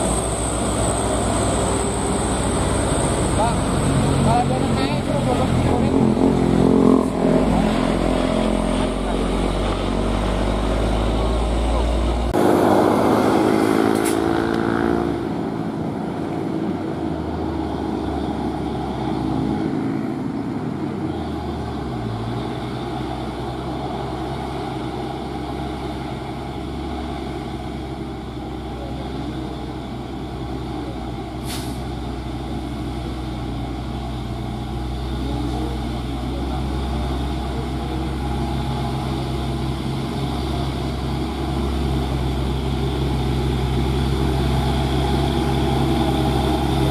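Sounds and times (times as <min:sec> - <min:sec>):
truck diesel engines running: 0:00.0 - 0:46.9
sharp air hiss: 0:31.4 - 0:31.9.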